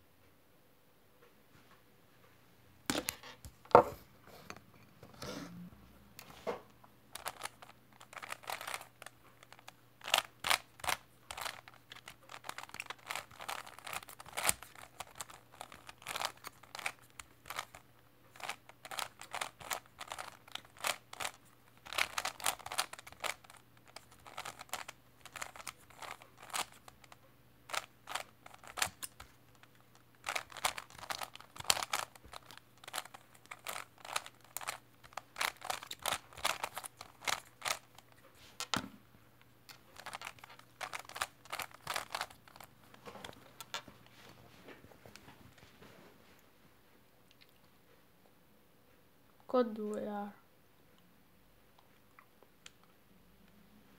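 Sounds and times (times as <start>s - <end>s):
speed cube turning clicks: 7.2s - 38.0s, 40.0s - 42.7s.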